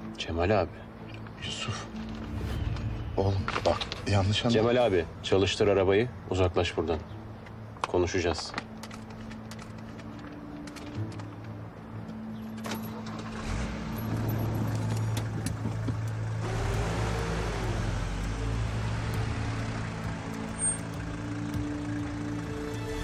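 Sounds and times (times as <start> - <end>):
truck engine driving away: 12.8 - 23.0.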